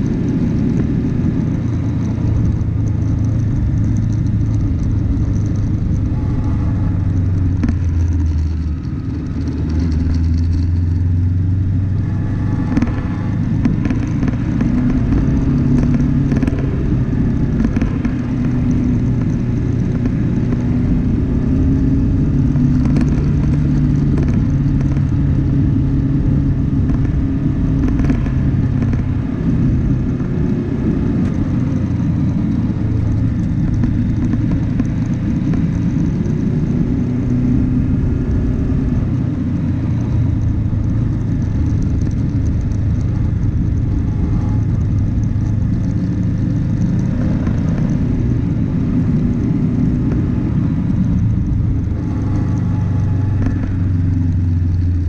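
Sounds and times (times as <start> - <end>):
knocks and rattles over bumps: 0.0 - 55.0
off-road vehicle engine rumble: 0.0 - 55.0.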